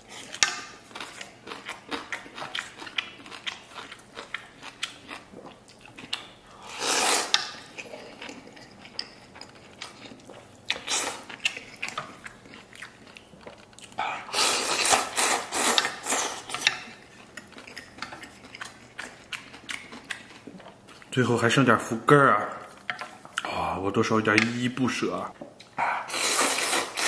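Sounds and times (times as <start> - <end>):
chewing: 0.0 - 21.2, 22.6 - 23.6, 25.3 - 27.0
person slurping noodles: 6.6 - 8.2, 14.0 - 16.6, 26.0 - 27.0.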